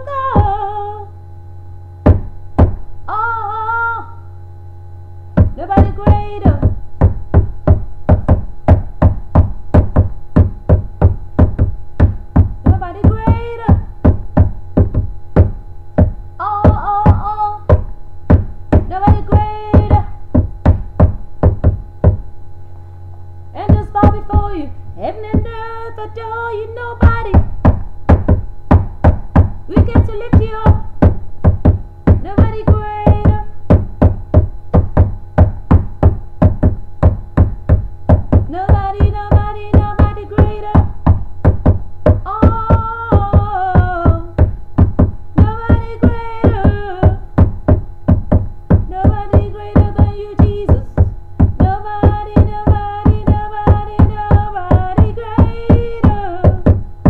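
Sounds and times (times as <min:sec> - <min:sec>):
low knocking beat: 0:00.0 - 0:01.0, 0:01.8 - 0:02.9, 0:05.2 - 0:57.0
woman singing gospel: 0:00.0 - 0:01.2, 0:03.1 - 0:04.3, 0:05.5 - 0:06.8, 0:12.7 - 0:13.9, 0:16.4 - 0:17.7, 0:18.8 - 0:20.2, 0:23.5 - 0:27.5, 0:29.7 - 0:30.9, 0:32.2 - 0:33.6, 0:38.5 - 0:41.0, 0:42.2 - 0:44.4, 0:45.4 - 0:47.3, 0:48.9 - 0:56.8.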